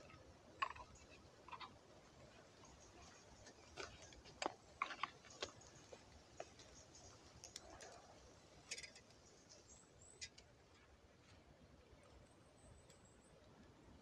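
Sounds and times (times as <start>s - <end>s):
twig fire crackling: 2.3s - 10.9s.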